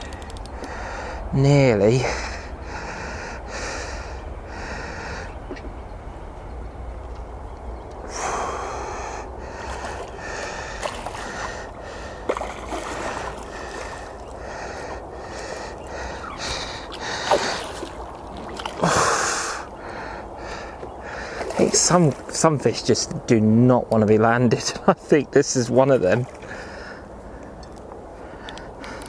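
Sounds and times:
fish splashing in water: 0:09.6 - 0:15.4, 0:16.1 - 0:19.0.

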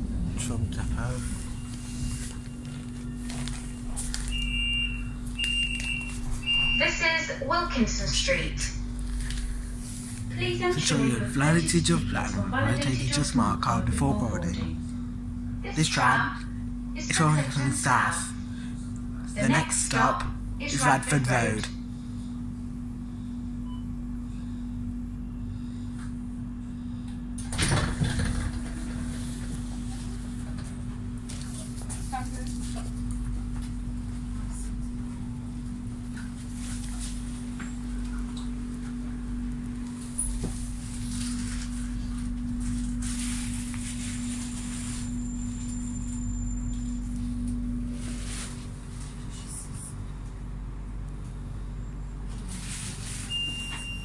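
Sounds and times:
loud burst of noise: 0:00.0 - 0:03.0
low rumble: 0:00.0 - 0:05.3
running rumble: 0:00.0 - 0:05.4, 0:06.2 - 0:49.6
faint high whine: 0:00.0 - 0:17.6, 0:36.2 - 0:48.6
tram interior hum: 0:00.0 - 0:54.0.

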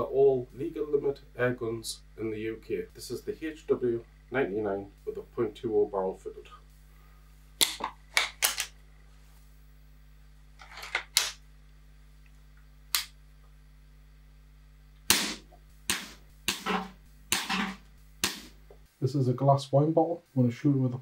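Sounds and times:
air rifle shots: 0:15.1 - 0:18.6.

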